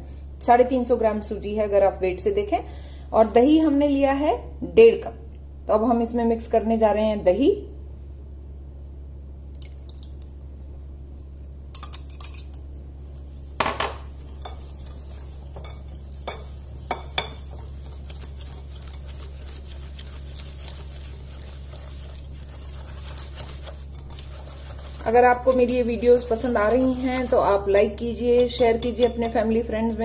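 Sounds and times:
steady low hum: 0.0s - 30.0s
spoon stirring thick mixture: 11.2s - 29.5s
spoon clinking against glass bowl: 11.7s - 12.6s, 15.6s - 17.5s, 28.3s - 29.4s.

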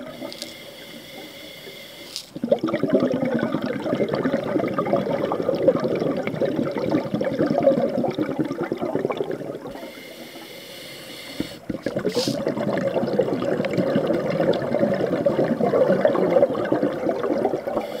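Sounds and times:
faint hiss: 0.0s - 2.4s, 9.7s - 12.5s
underwater breath bubbling: 0.0s - 18.0s.

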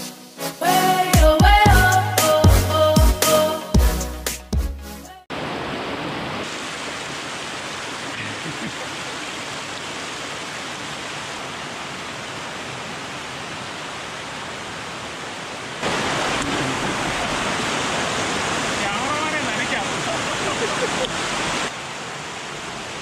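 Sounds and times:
flowing water rushing: 5.3s - 23.0s.

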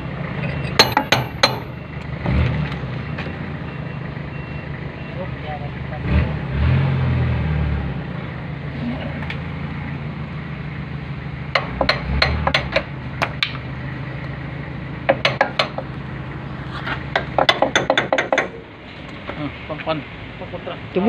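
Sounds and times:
slide hammer metal clanks: 0.8s - 1.8s, 17.2s - 18.6s.

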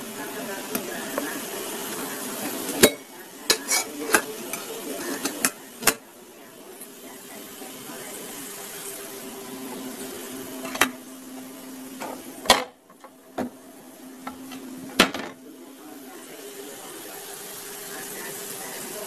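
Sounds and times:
bread frying in hot oil: 0.0s - 19.0s.

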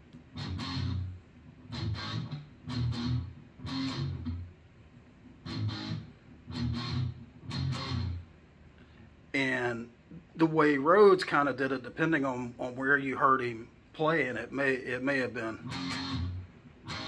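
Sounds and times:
electric guitar chugging strokes: 0.3s - 4.5s, 5.4s - 8.2s, 15.6s - 17.0s.

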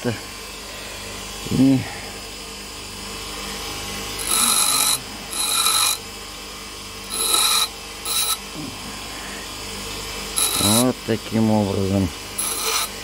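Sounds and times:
bench grinder running: 0.0s - 13.0s
metal grinding on wheel: 4.2s - 6.0s, 7.0s - 8.4s, 10.4s - 11.0s, 12.4s - 13.0s.

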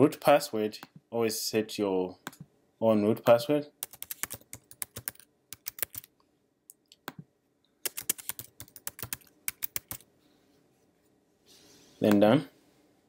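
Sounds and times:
typing on computer keyboard: 3.8s - 6.1s, 7.8s - 10.0s.

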